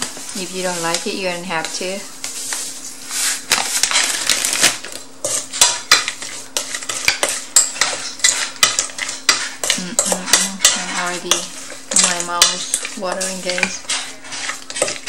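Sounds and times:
plastic bag rustling: 0.0 - 5.5
salad tossed in metal bowl: 2.3 - 15.0.

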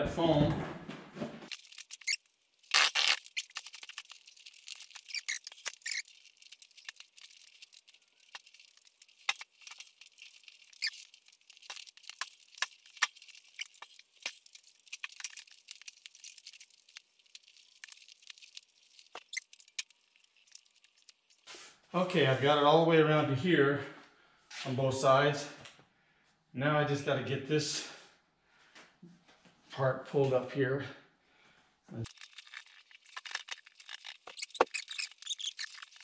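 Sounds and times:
vinyl upholstery rustling and squeaking: 1.5 - 16.6, 32.1 - 36.0
sharp crackles and scrapes: 1.5 - 21.8, 32.0 - 36.0.

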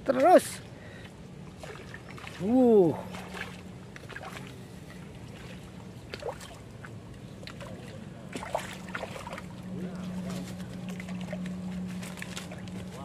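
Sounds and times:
fish splashing in water: 1.6 - 9.7.

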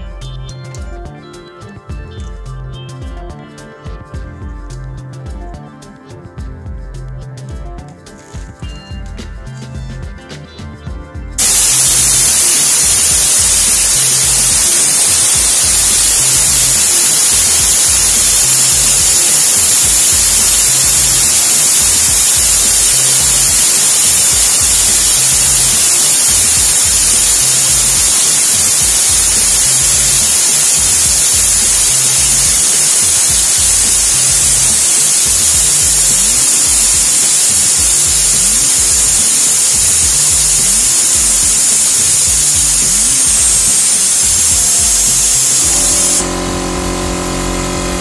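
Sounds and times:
music with low beat: 0.0 - 48.0
compressed air hissing: 11.4 - 48.0.

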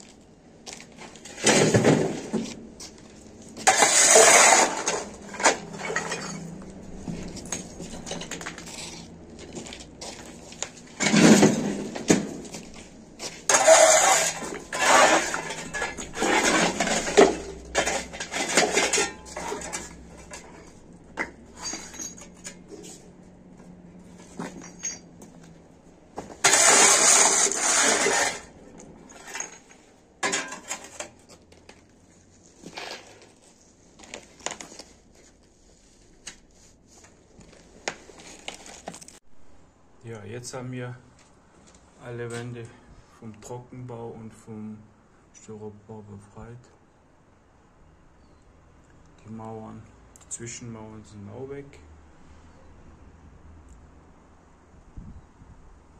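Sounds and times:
broom sweeping concrete floor: 2.0 - 6.4, 12.6 - 20.4, 26.4 - 28.5
debris rattling and clinking: 3.6 - 9.8, 10.6 - 12.7, 13.4 - 22.7, 24.2 - 25.3, 26.4 - 31.3.

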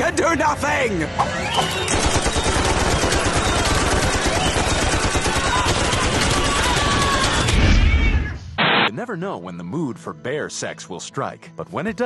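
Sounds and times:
automatic gunfire: 1.9 - 7.6.

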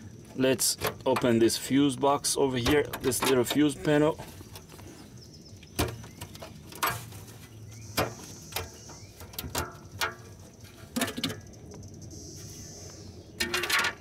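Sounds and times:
metal cover clicks and knocks: 2.6 - 3.7, 5.7 - 7.0, 8.0 - 11.4, 13.4 - 14.0.

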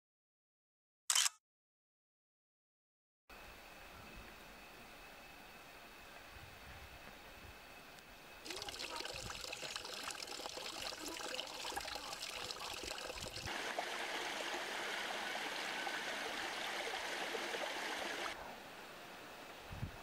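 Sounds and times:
stream water trickling: 8.4 - 18.4
rush of water: 8.5 - 18.4.

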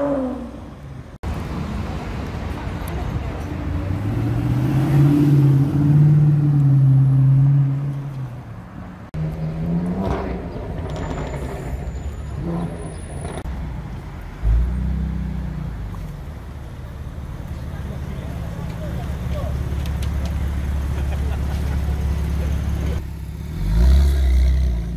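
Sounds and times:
engine revving: 9.2 - 13.5, 22.3 - 24.9.

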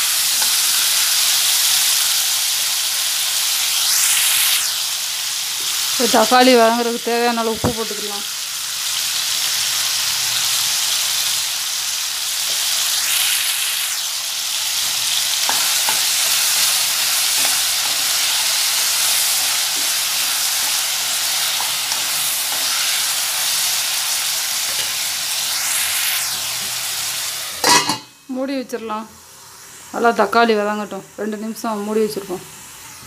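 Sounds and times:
food sizzling in hot oil: 0.0 - 33.0
spatula scraping pan: 15.4 - 23.8, 24.6 - 25.0, 27.6 - 28.1.

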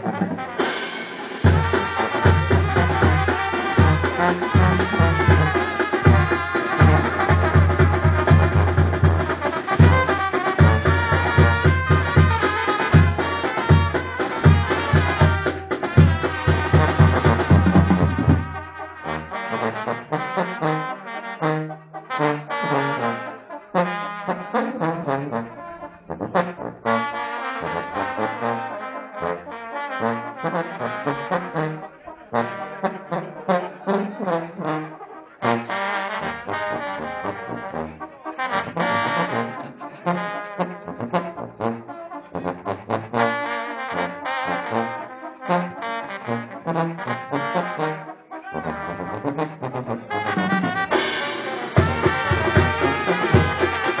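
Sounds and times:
brass band playing: 0.0 - 54.0.

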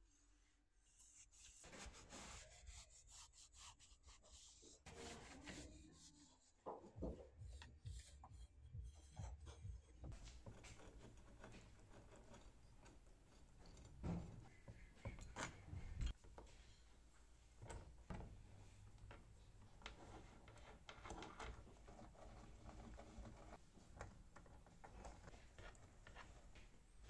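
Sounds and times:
cloth rag rubbing on metal: 1.0 - 6.6.

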